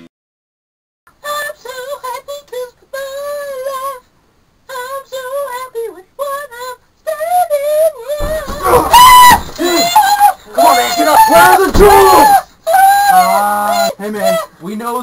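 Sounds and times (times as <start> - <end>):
man singing unaccompanied: 8.2 - 15.0.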